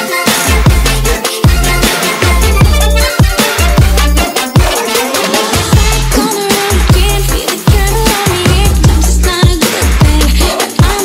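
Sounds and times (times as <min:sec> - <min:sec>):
held synth melody: 0:00.0 - 0:05.9
heavy bass line: 0:00.3 - 0:09.4.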